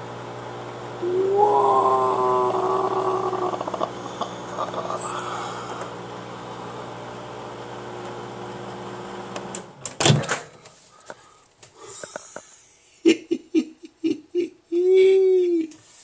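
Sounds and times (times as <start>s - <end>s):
microwave oven humming: 0.0s - 11.4s
person laughing: 1.0s - 5.6s, 11.8s - 15.8s.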